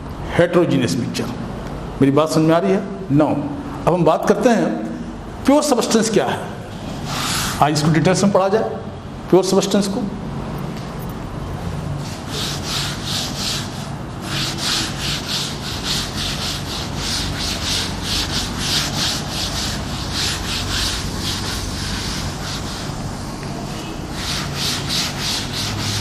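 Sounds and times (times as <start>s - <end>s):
cloth scrubbing a chalkboard: 6.8s - 8.0s, 12.0s - 23.1s, 23.7s - 26.0s.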